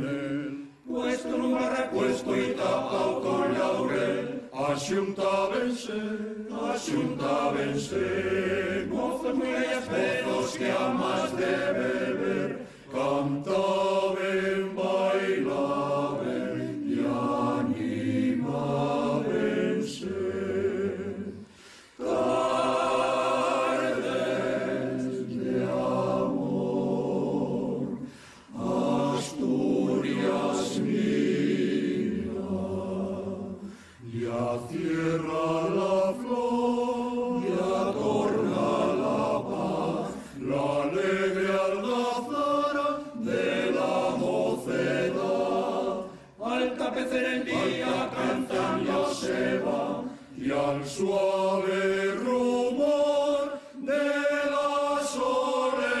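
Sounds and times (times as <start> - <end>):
men's choir singing a cappella: 0.0 - 56.0.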